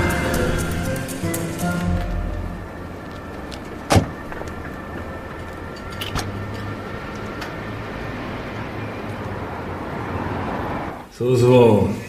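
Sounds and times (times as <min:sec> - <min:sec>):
low hum of street ambience: 0:00.0 - 0:12.0
car door slamming: 0:03.9 - 0:04.2.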